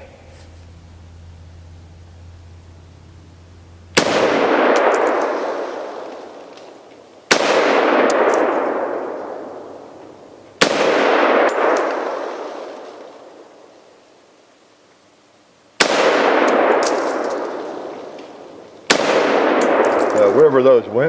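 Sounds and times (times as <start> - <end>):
bullet pinging steel target: 3.9 - 5.6, 7.3 - 9.0, 10.6 - 12.4, 15.8 - 17.7, 18.9 - 20.5
rifle shots with rolling echo: 3.9 - 14.0, 15.8 - 20.9.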